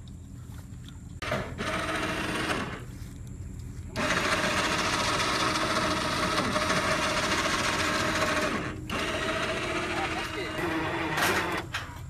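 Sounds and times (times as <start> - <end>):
electric winch motor whining: 1.2 - 2.9, 3.9 - 11.8.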